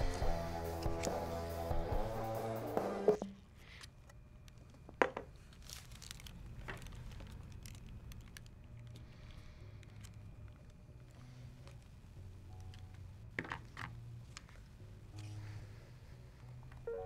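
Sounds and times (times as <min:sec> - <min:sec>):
music: 0:00.0 - 0:03.4, 0:08.6 - 0:17.0
low steady hum: 0:03.2 - 0:17.0.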